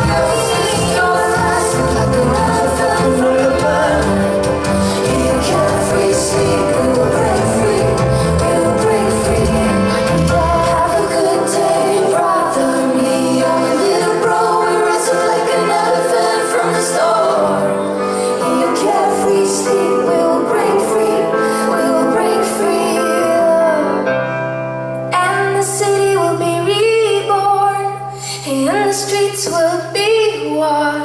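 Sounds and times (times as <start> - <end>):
woman singing: 0.0 - 24.2, 25.1 - 31.0
pop band playing: 0.0 - 30.5.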